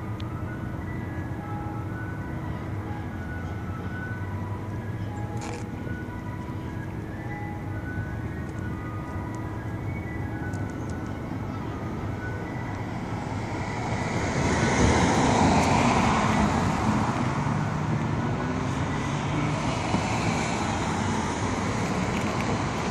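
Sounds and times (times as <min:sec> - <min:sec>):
street traffic: 0:00.0 - 0:22.9.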